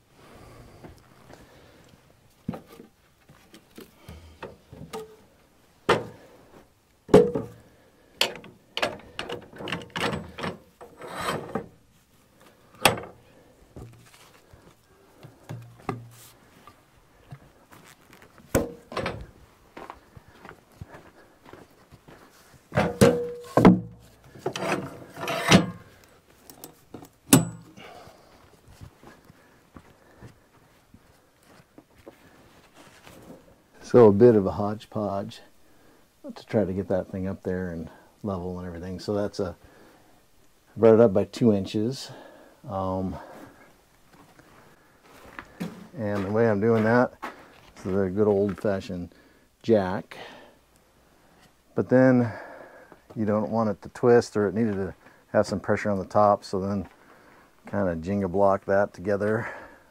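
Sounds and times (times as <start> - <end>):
hard knocks of wood and metal: 5.8 - 6.2, 7.1 - 11.7, 18.5 - 19.3, 22.7 - 25.9, 27.0 - 27.8
heavy log knocking and thudding: 7.1 - 7.6, 22.7 - 24.0
wood scraping on wood: 10.2 - 11.7, 23.4 - 26.1.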